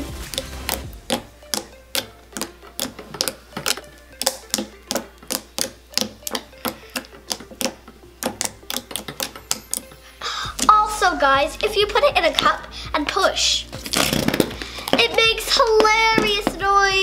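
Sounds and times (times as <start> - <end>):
slime popping and clicking: 0.2 - 10.8.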